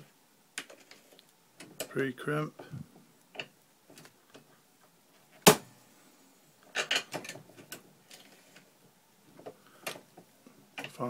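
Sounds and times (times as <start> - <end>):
loud sharp knock: 5.4 - 5.7.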